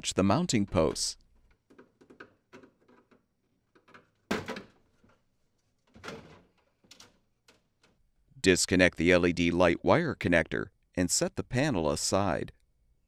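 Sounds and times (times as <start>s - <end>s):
plastic clicks and rustling: 1.4s - 8.0s.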